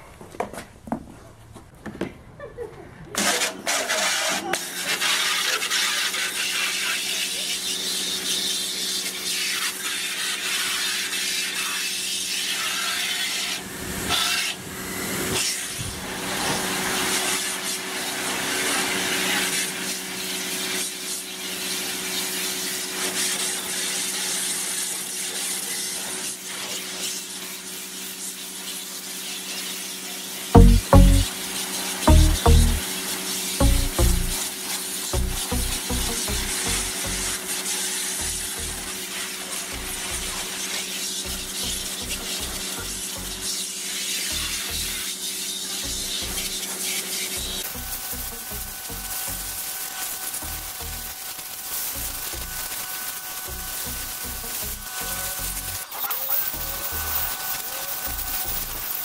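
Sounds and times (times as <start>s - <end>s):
pressure washer motor humming: 30.6s - 31.3s, 32.1s - 32.8s, 33.6s - 59.0s.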